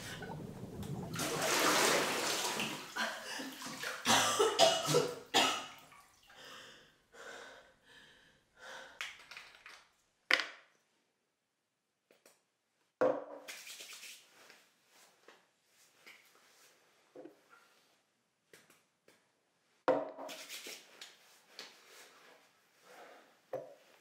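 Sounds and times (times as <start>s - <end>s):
bathwater sloshing and splashing: 0.0s - 4.1s, 4.9s - 6.4s.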